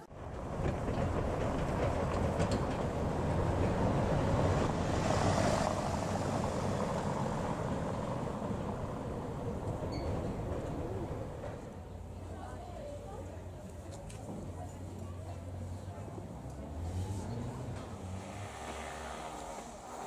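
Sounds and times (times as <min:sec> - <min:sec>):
road train driving over cobblestones: 0:00.0 - 0:20.0
car passing on cobbles: 0:00.1 - 0:12.0, 0:16.5 - 0:20.0.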